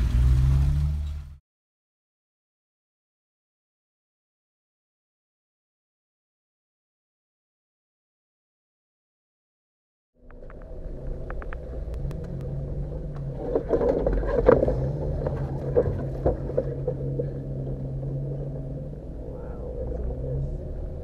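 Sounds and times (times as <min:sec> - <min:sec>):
engine running at low revs: 0:00.0 - 0:01.4, 0:10.2 - 0:21.0
suspension knocks and clunks: 0:10.4 - 0:18.7.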